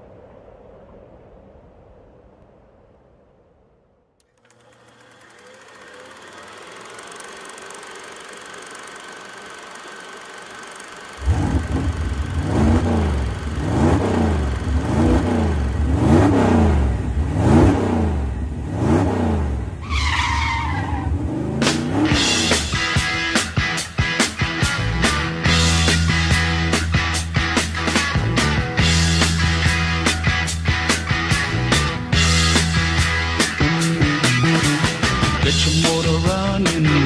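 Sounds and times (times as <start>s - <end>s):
engine revving: 4.4s - 19.8s, 21.0s - 23.8s.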